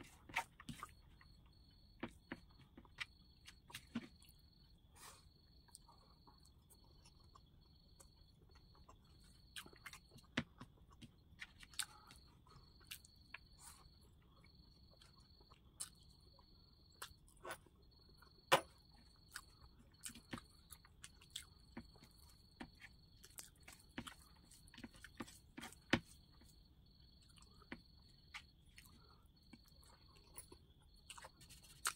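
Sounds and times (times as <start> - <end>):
chewing with wet smacks: 19.1 - 26.6, 27.2 - 31.9.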